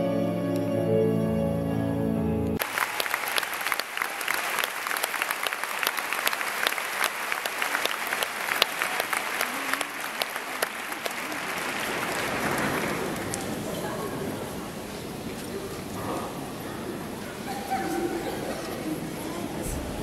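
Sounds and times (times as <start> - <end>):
stage music: 0.0 - 5.1
audience applauding: 2.6 - 14.5.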